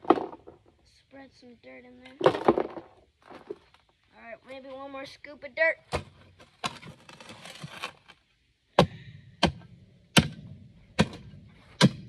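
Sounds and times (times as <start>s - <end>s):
shovel scraping dry dirt: 6.0s - 8.2s
shovel blade chopping dirt: 8.8s - 12.0s.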